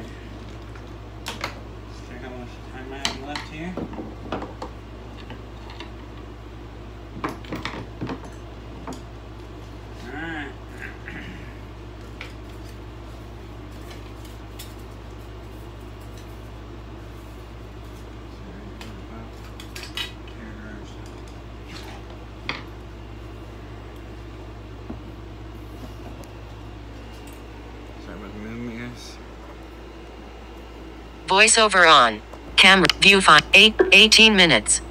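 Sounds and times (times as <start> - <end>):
steady low hum: 20.4 - 34.9.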